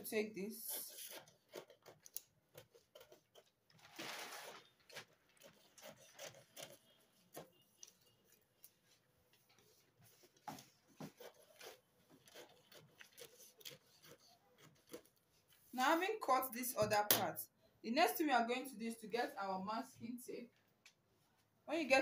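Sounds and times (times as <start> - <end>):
scissors snipping paper: 0.7 - 8.8, 11.0 - 15.2
paper rustling on wooden table: 3.3 - 14.2.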